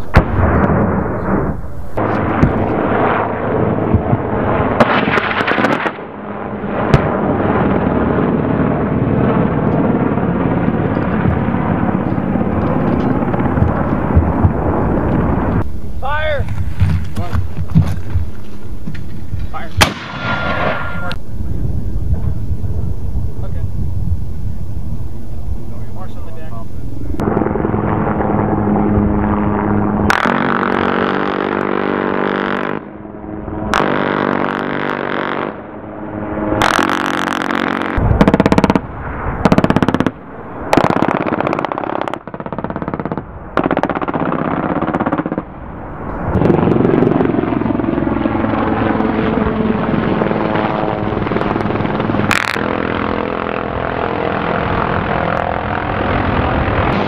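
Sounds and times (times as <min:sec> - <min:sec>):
helicopter rotor and turbine: 0:00.0 - 0:57.0
machine-gun fire: 0:04.0 - 0:06.0, 0:19.8 - 0:21.0, 0:30.1 - 0:32.8, 0:33.7 - 0:35.6, 0:36.6 - 0:45.4.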